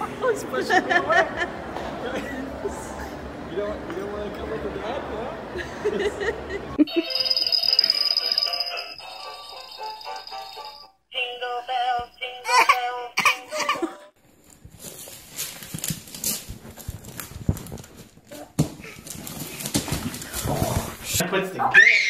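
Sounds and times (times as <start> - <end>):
toy playing electronic tune: 6.9 - 11.0
rustling and crinkling: 14.2 - 21.2.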